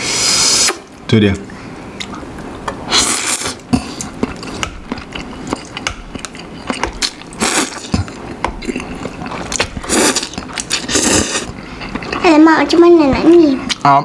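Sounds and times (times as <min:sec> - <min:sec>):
person slurping noodles: 0:00.0 - 0:00.8, 0:02.9 - 0:04.7, 0:07.3 - 0:12.2
wet chewing: 0:02.0 - 0:14.0.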